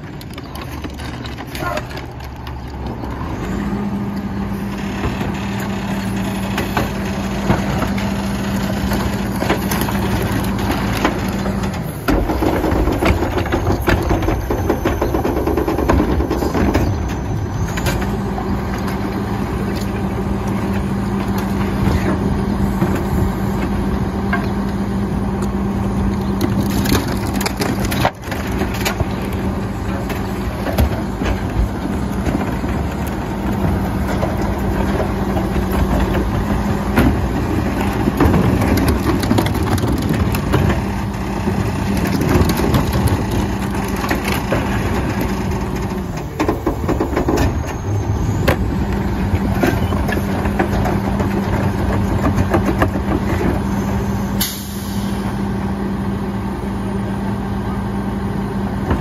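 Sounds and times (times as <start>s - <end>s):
garbage truck engine hum: 0.0s - 59.0s
refuse being crushed: 5.1s - 22.2s, 26.2s - 53.7s
plastic carts knocking: 6.6s - 17.2s, 26.3s - 47.8s, 48.5s - 53.8s.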